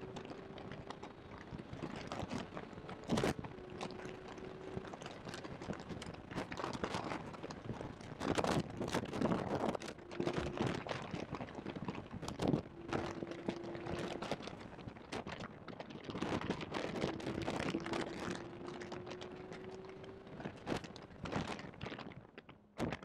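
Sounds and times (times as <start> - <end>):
microphone knocking and crackling: 4.7 - 23.0
car engine: 16.9 - 20.6.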